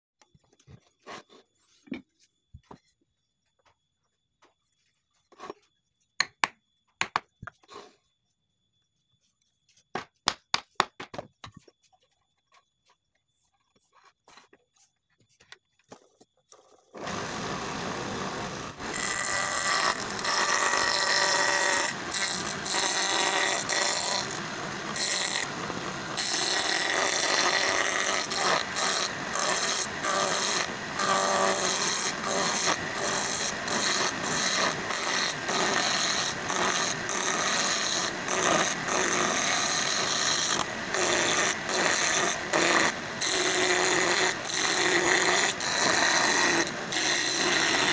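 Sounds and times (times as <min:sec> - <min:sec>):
chisel scraping wood on a lathe: 0:18.8 - 0:25.5, 0:26.1 - 0:47.9.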